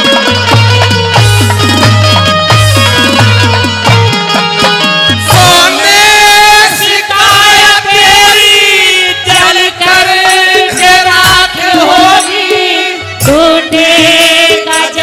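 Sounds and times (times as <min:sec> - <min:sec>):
accompanying folk music: 0:00.0 - 0:15.0
men singing through microphones: 0:05.3 - 0:15.0.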